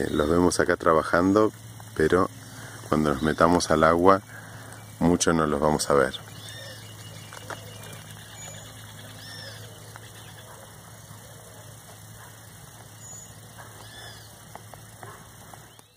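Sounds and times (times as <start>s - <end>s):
steady low hum: 0.0s - 15.9s
faint high chirps: 6.1s - 14.6s.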